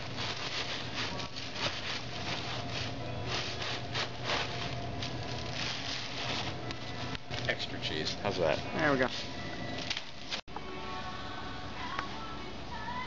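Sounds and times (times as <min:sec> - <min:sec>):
frozen packages rustling and scraping: 0:00.0 - 0:10.4
refrigeration hum: 0:00.0 - 0:13.0.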